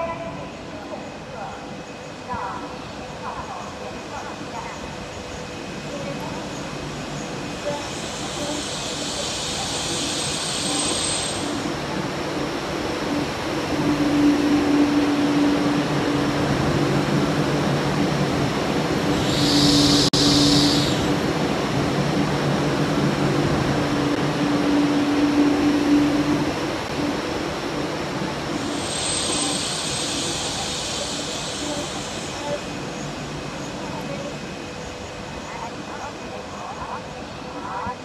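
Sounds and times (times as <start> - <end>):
train rolling rumble: 0.0 - 38.0
air hiss: 28.7 - 32.4.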